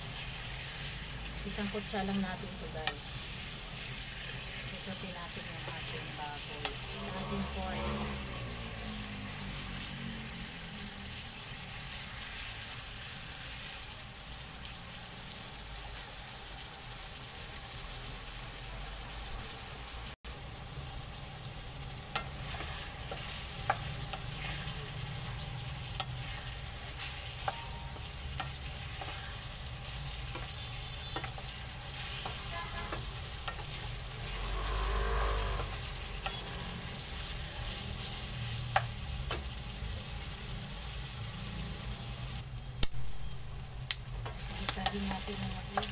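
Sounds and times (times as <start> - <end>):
pork sizzling in hot oil: 0.0 - 45.9
spoon tapping against pan: 27.4 - 29.2.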